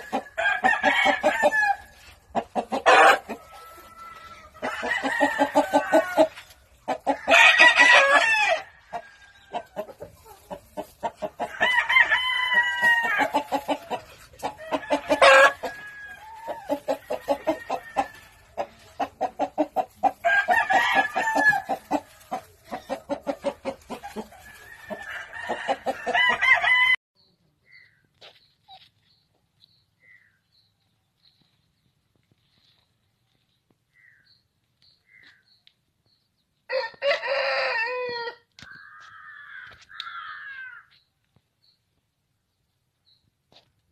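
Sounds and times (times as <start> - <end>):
chickens clucking: 0.0 - 26.4
rooster crowing: 0.1 - 1.8, 2.9 - 6.4, 7.1 - 9.6, 11.4 - 13.4, 14.6 - 18.4, 20.2 - 21.8, 24.5 - 27.0, 36.7 - 40.9.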